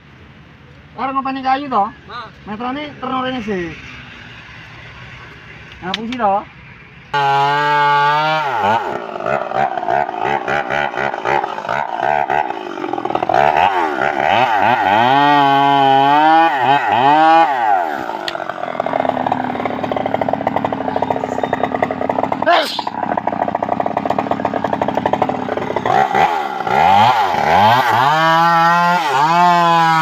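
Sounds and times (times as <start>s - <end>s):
chainsaw cutting log: 7.2s - 30.0s.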